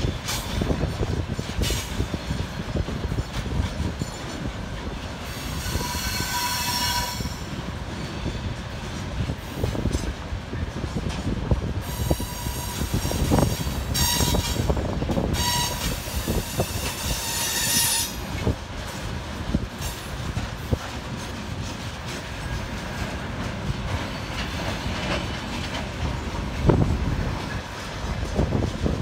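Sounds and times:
train wheel squeal: 0.0s - 10.1s, 11.8s - 18.6s
freight train rumbling past: 0.0s - 29.0s.

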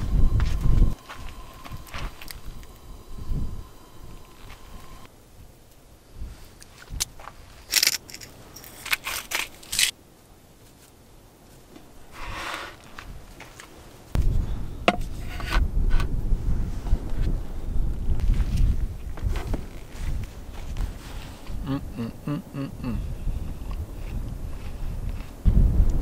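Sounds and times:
wind rumble on microphone: 0.0s - 7.6s, 14.1s - 26.0s.

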